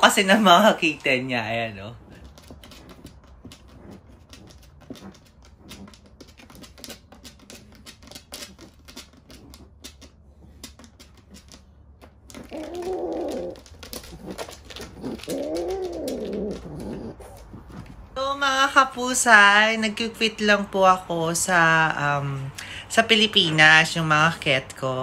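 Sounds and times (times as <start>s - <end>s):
cat yowling: 12.4s - 14.4s, 15.0s - 17.2s.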